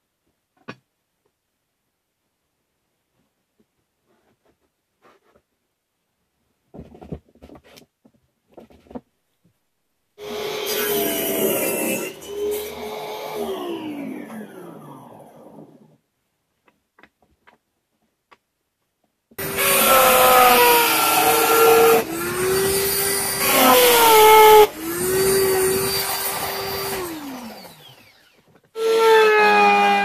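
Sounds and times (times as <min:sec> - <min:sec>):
drill press motor whining: 0:19.4 - 0:30.0.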